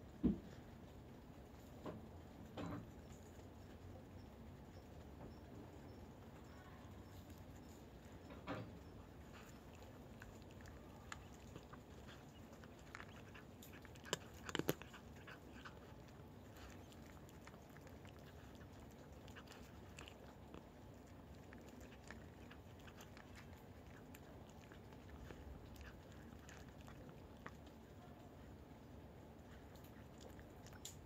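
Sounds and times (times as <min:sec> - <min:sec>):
cats crunching dry kibble: 0:00.1 - 0:31.0.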